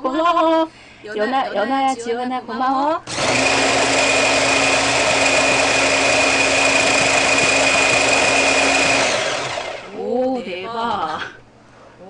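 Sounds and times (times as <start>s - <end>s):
hand blender motor whining: 3.1s - 10.0s.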